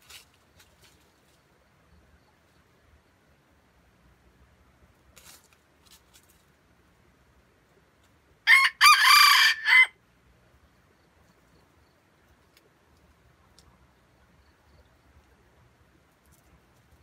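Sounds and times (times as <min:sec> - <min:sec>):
rooster crowing: 0:08.5 - 0:10.0.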